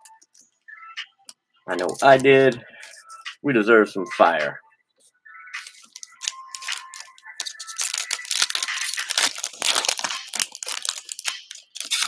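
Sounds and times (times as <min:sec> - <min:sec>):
foil wrapper tearing and crinkling: 0:05.6 - 0:12.0.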